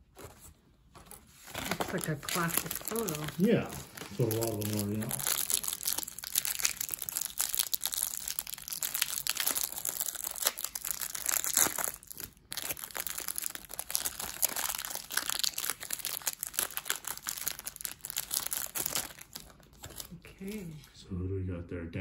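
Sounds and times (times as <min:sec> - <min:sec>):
plastic wrapper crinkling: 0:00.0 - 0:20.8.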